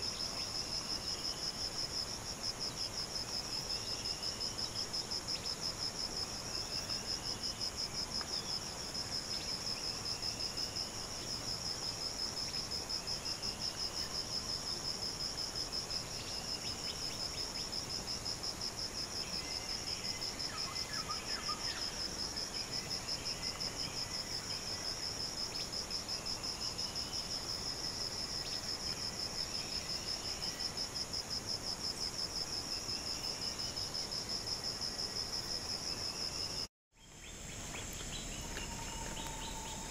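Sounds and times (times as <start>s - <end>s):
insect trilling: 37.7s - 39.9s.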